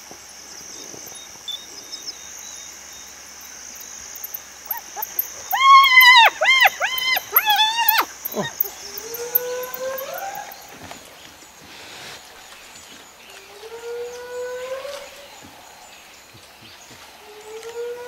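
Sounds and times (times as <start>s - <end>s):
hyena whooping: 4.7s - 10.7s.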